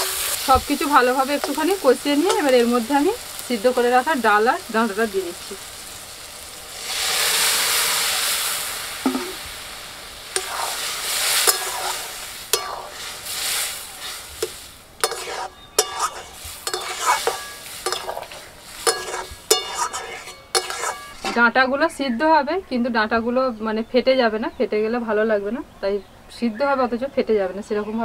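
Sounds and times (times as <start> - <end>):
metal spatula scraping a wok: 0.0 - 3.9, 10.3 - 21.5
food sizzling in hot oil: 0.0 - 21.6.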